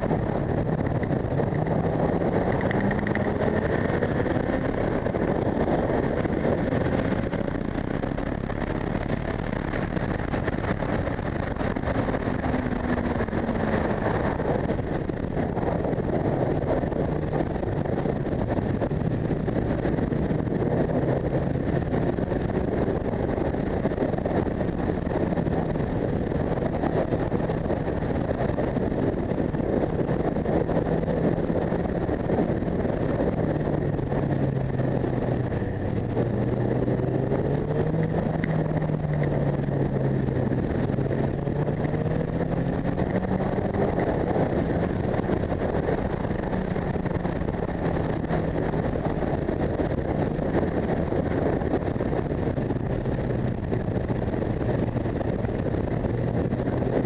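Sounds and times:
motorcycle engine running: 0.0 - 57.0
wind on microphone: 0.0 - 57.0.

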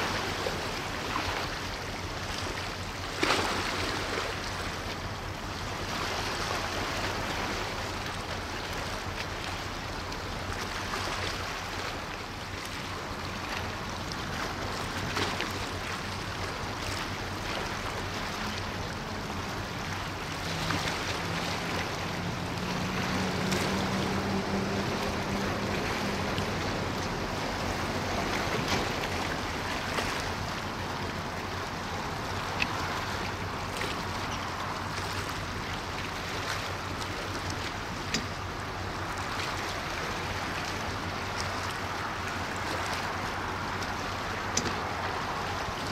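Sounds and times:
ship engines droning: 0.0 - 45.9
wind: 0.0 - 45.9
water washing: 12.8 - 45.9
higher engine tone: 20.0 - 29.3.

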